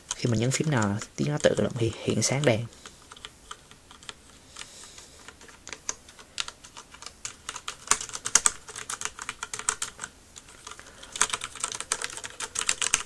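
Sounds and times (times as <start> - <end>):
mechanical keyboard keystrokes: 0.0 - 1.8, 2.4 - 13.0.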